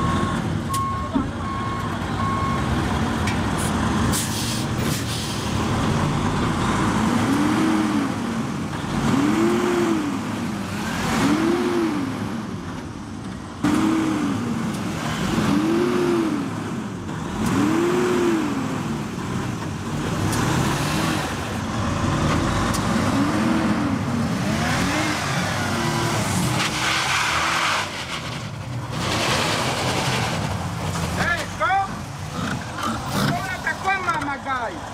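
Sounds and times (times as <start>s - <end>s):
pickup engine revving: 5.5s - 12.7s, 13.6s - 33.9s.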